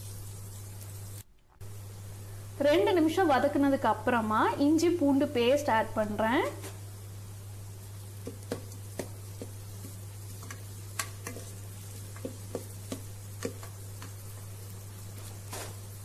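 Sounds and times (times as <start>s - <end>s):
faint sizzle: 0.0s - 16.0s
spoon tapping pot: 8.2s - 14.2s.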